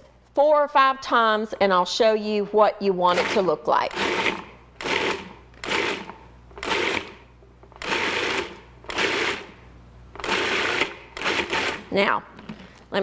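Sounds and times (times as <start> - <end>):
food processor pulsing: 3.1 - 9.6, 10.2 - 12.0.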